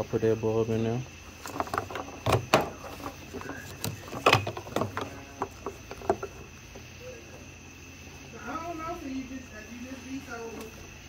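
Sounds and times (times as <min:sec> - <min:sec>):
hands handling plastic parts: 0:01.4 - 0:06.5.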